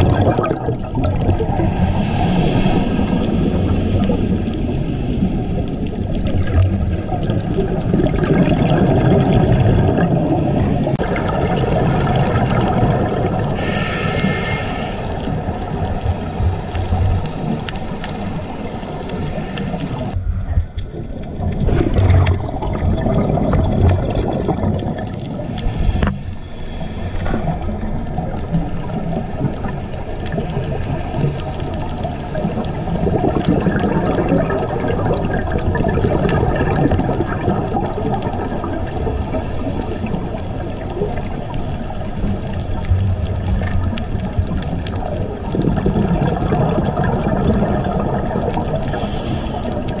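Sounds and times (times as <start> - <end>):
underwater bubbling water: 0.0 - 50.0.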